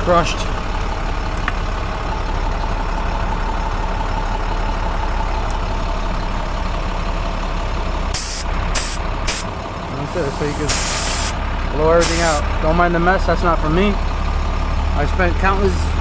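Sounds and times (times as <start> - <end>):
truck engine idling: 0.0 - 16.0
compressed air blast: 8.1 - 9.5, 10.1 - 11.4, 12.0 - 12.4.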